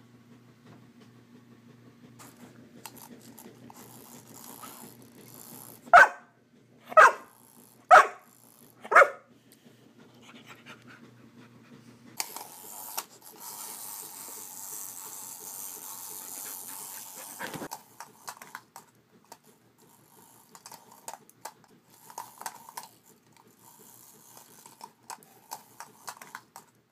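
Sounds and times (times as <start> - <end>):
dog barking: 5.9 - 6.3, 6.9 - 7.3, 7.9 - 8.2, 8.8 - 9.3.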